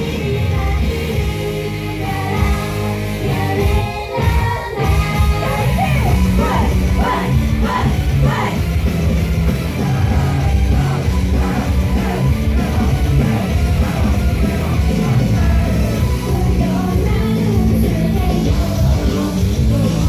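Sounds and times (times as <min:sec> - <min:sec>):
loud live rock music: 0:00.0 - 0:20.0
shouted vocals: 0:04.2 - 0:08.8, 0:09.6 - 0:17.4.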